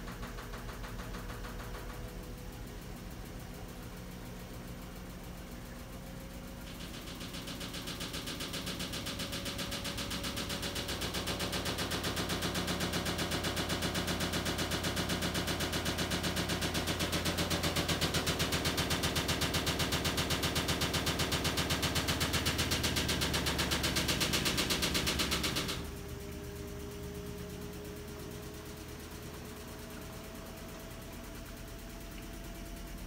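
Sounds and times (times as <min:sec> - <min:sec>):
rapid knocking of washing machine drum: 0:00.0 - 0:33.0
washing machine spinning: 0:00.0 - 0:33.0.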